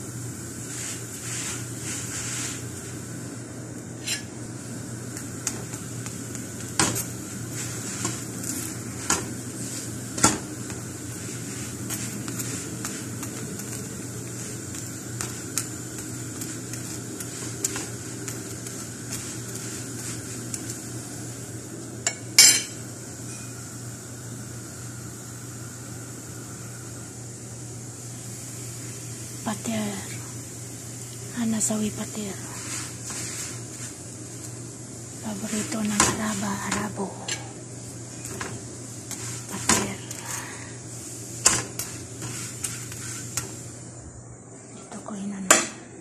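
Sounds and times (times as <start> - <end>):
steady gas hiss: 0.0 - 46.0
iron griddle clinking and knocking: 22.0 - 23.6.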